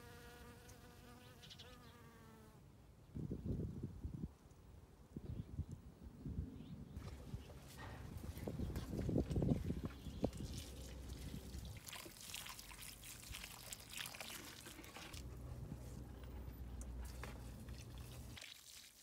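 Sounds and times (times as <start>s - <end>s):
liquid pouring onto soil: 10.3s - 15.2s, 17.0s - 19.0s.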